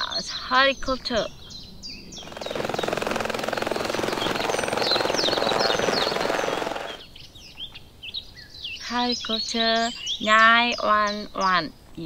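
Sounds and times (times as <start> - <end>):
birds chirping: 0.0 - 12.0
fast chopping whir: 2.2 - 7.1.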